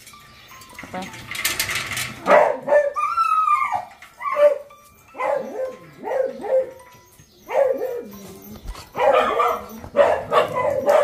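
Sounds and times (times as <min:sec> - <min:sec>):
dogs barking: 0:02.2 - 0:11.0
dog howling: 0:02.4 - 0:06.8.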